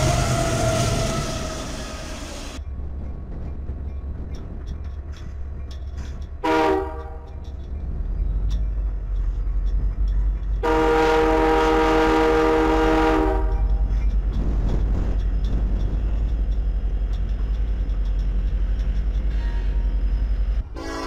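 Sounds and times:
locomotives rumbling past: 0:00.0 - 0:21.0
locomotive air horn: 0:06.4 - 0:07.4, 0:10.6 - 0:13.8, 0:20.7 - 0:21.0.

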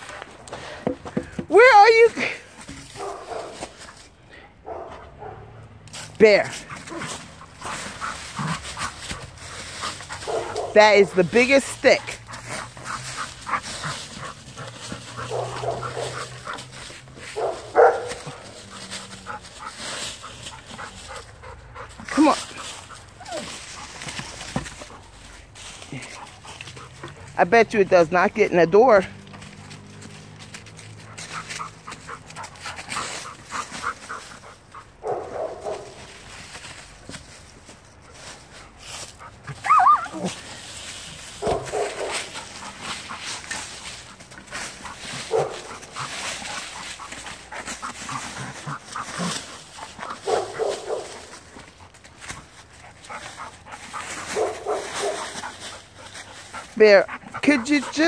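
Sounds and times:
dry leaves rustling: 0:00.0 - 0:00.8, 0:01.5 - 0:04.9, 0:05.8 - 0:58.0
dog whining and yelping: 0:23.1 - 0:23.9, 0:39.4 - 0:40.4
dog whining: 0:39.5 - 0:40.4.

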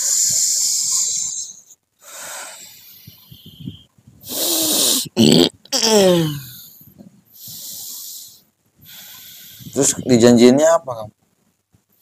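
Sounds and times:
man breathing hoarsely: 0:00.0 - 0:05.1, 0:06.0 - 0:09.8
man groaning: 0:05.0 - 0:06.5.

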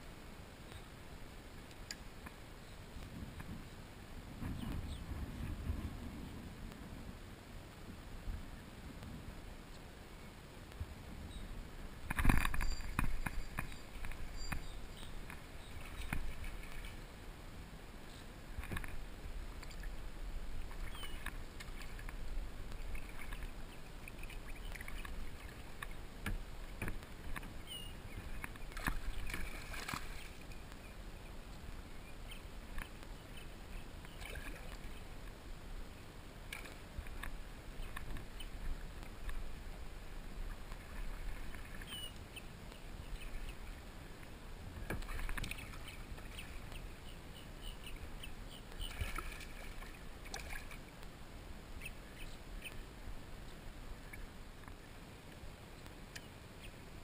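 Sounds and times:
paddle splashing and dripping: 0:12.0 - 0:17.1, 0:18.5 - 0:30.9, 0:33.7 - 0:35.4, 0:44.8 - 0:47.0, 0:47.6 - 0:51.1.

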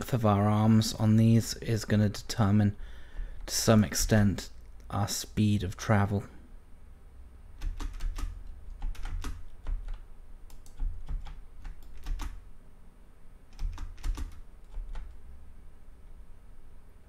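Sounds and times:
keyboard keys clicking: 0:07.6 - 0:12.4, 0:13.5 - 0:15.2.

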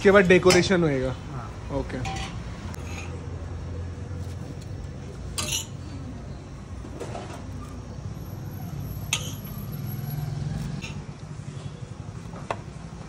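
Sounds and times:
low traffic rumble: 0:00.0 - 0:13.0
metal utensils clinking on griddle: 0:01.9 - 0:03.2, 0:05.2 - 0:05.9, 0:09.0 - 0:09.7, 0:10.8 - 0:11.0.

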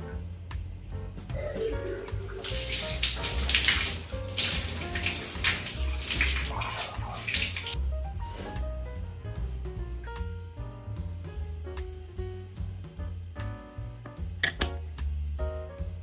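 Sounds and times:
background music with low bass: 0:00.0 - 0:16.0
running water hiss: 0:01.4 - 0:07.8.

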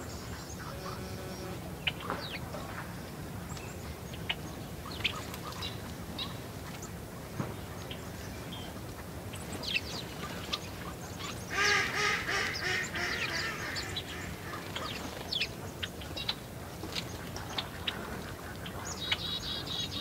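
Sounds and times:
sparrows chirping: 0:09.3 - 0:18.1.

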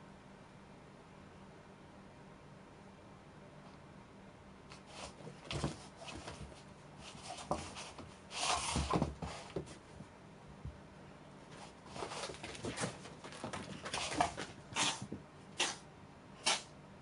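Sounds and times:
rustling scuffle: 0:04.7 - 0:10.1, 0:11.4 - 0:15.2
cats scuffling: 0:04.7 - 0:15.3.

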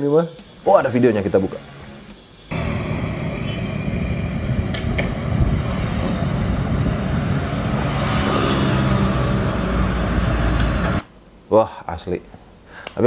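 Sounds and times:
road traffic rumble: 0:01.3 - 0:11.0.

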